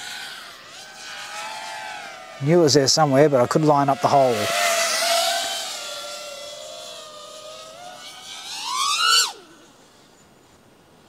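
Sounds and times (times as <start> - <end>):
quadcopter motors whining: 0.0 - 10.7
faint hiss: 2.4 - 11.0.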